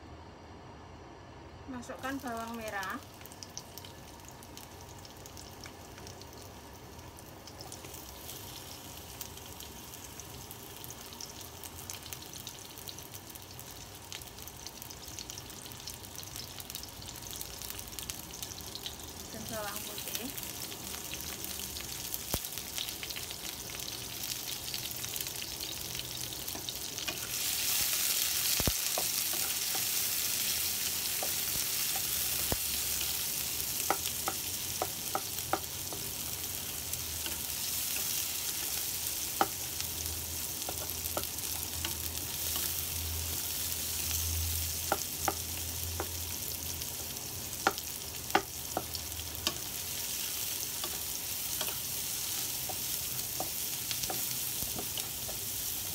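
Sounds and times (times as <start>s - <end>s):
shallots sizzling in hot oil: 1.7s - 55.9s
spatula tapping against pan: 33.8s - 36.1s, 44.9s - 46.2s, 47.6s - 49.6s.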